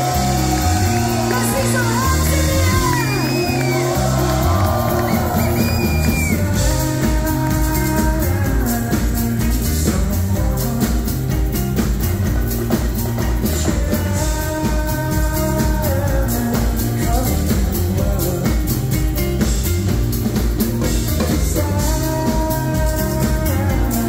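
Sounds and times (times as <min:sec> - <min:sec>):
synth bass line: 0:00.0 - 0:18.4
person singing: 0:00.0 - 0:19.6, 0:20.3 - 0:24.0
drum beat: 0:00.0 - 0:24.0.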